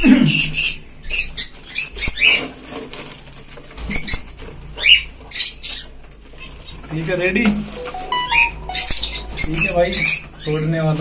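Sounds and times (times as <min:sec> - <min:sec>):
high bird chirps: 0:07.8 - 0:10.4.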